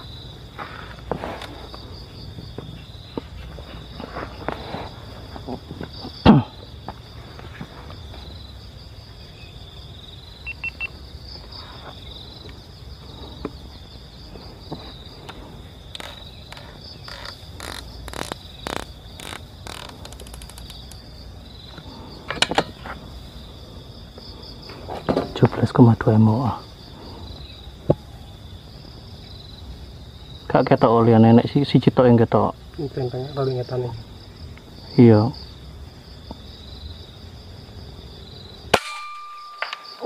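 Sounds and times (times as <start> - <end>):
insects chorus: 0.0 - 40.0
sharp loud crack: 38.7 - 40.0.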